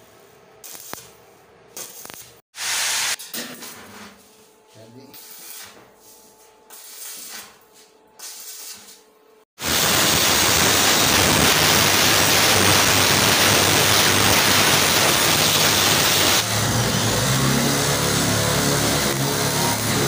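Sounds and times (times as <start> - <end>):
angle grinder grinding metal: 12.5 - 20.0
polisher buffing steel: 14.6 - 20.0.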